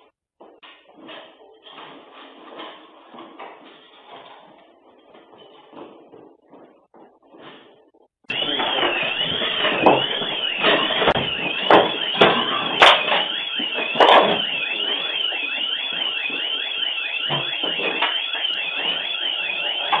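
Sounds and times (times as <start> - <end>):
loud knocks and bangs: 8.3 - 14.7
burglar alarm siren warbling: 8.3 - 20.0.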